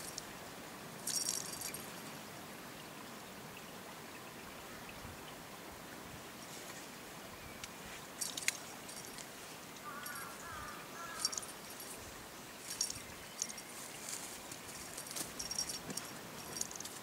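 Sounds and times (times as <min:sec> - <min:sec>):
steady background hiss: 0:00.0 - 0:17.0
small bell jingling: 0:01.0 - 0:02.0, 0:08.2 - 0:09.3, 0:09.9 - 0:17.0.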